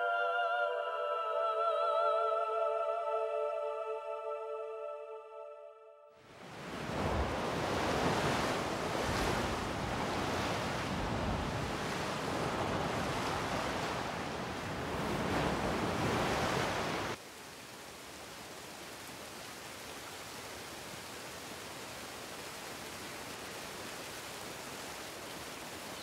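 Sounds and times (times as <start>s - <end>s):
surf breaking over rocks: 6.4s - 17.2s.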